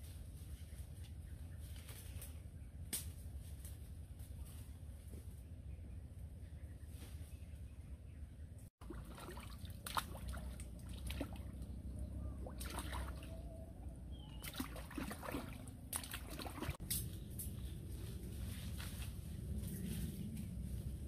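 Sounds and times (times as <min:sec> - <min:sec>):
hands splashing in water: 0:08.8 - 0:11.6, 0:12.4 - 0:13.4, 0:14.3 - 0:17.0.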